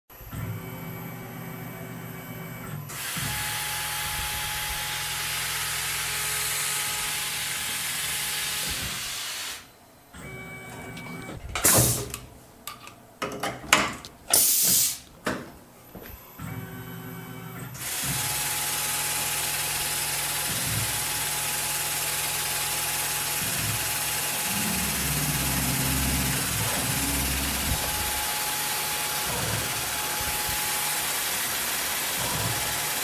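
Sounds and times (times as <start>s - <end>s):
air blasts: 14.3s - 15.1s
coolant spraying hiss: 14.4s - 15.0s
spindle hum: 22.3s - 30.8s.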